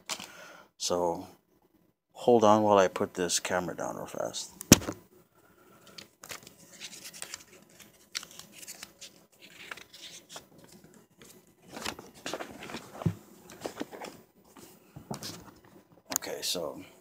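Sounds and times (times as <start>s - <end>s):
camera handling rustles: 4.7s - 5.0s, 11.7s - 14.2s
sharp knock: 4.7s - 5.0s.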